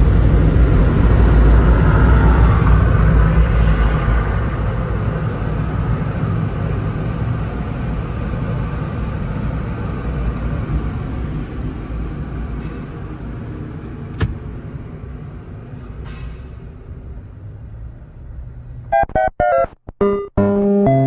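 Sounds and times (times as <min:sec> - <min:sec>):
low car cabin rumble: 0:13.9 - 0:15.0.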